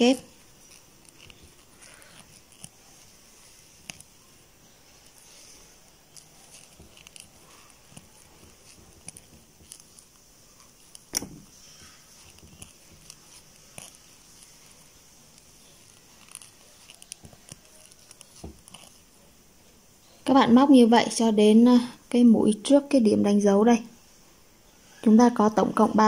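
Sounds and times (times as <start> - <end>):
crochet hook and yarn clicking: 0.0 - 4.2, 5.0 - 19.0.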